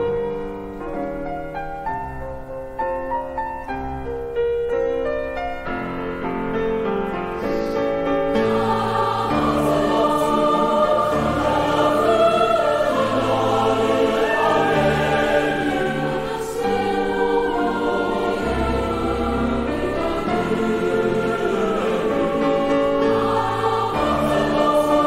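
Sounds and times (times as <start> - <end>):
piano accompaniment: 0.0 - 25.0
choir singing sustained chords: 6.4 - 25.0.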